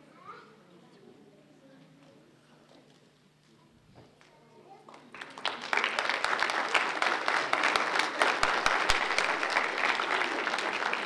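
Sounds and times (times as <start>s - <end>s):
audience applauding: 5.1s - 11.0s.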